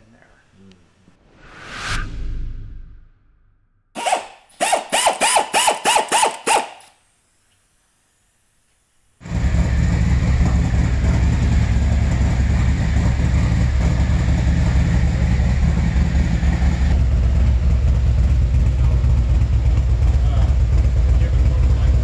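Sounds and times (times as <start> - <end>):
motorcycle engine running: 9.2 - 22.0.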